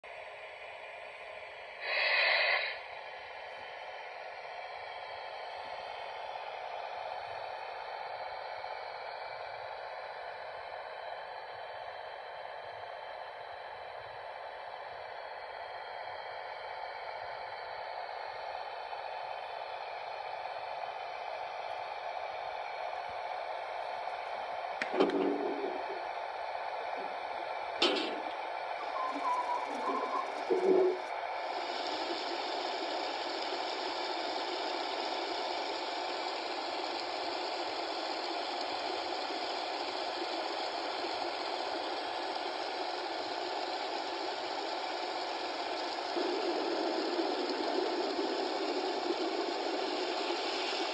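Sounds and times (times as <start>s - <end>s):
model trains whirring and rumbling: 0.1s - 50.9s
brief clanks: 27.8s - 28.4s.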